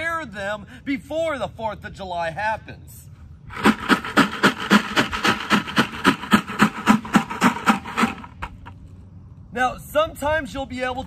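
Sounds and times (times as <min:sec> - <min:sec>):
rocks rattling in plastic bucket: 0:03.5 - 0:08.5.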